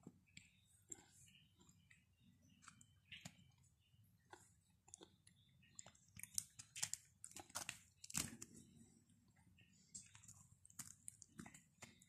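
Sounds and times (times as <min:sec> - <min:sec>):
chewing: 0:00.2 - 0:08.7, 0:09.4 - 0:12.0
flatbread crackling as torn: 0:06.2 - 0:08.6.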